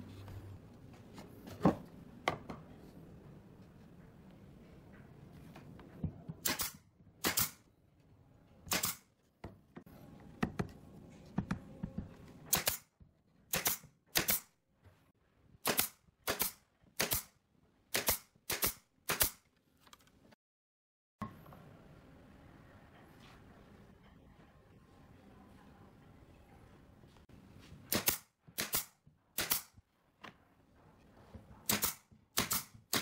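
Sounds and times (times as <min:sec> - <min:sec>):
nail gun firing into wood: 0:06.4 - 0:07.6, 0:08.7 - 0:09.1, 0:12.5 - 0:12.9, 0:13.5 - 0:14.5, 0:15.6 - 0:17.3, 0:17.9 - 0:19.4, 0:27.9 - 0:29.7, 0:31.7 - 0:33.0.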